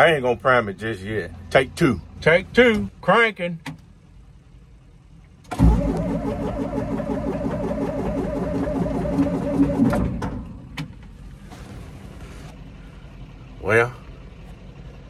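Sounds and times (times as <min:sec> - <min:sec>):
diesel engine cranking: 0:03.6 - 0:15.0.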